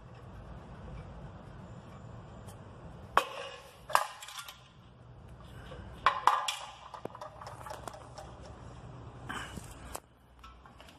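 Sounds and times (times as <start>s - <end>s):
empty cans clinking on concrete: 6.0s - 8.5s.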